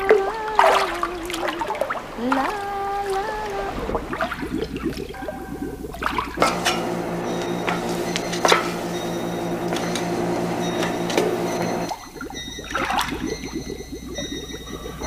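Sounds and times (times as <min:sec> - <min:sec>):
boat engine clattering: 0:00.0 - 0:15.0
sharp metallic clanks: 0:06.3 - 0:13.7.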